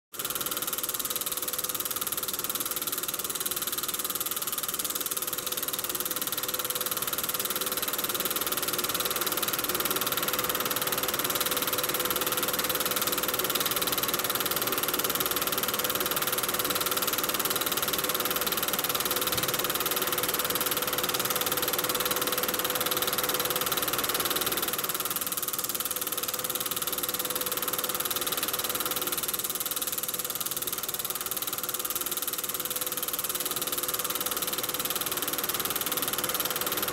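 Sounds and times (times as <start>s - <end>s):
film projector whirring: 0.1s - 36.9s.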